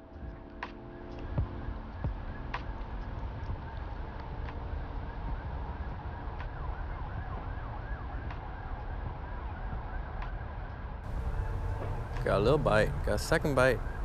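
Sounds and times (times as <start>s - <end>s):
wind buffeting microphone: 11.1s - 14.0s.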